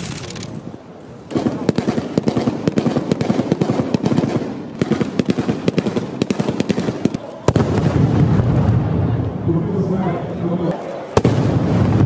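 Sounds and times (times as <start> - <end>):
rapid assault rifle gunfire: 1.3 - 8.0.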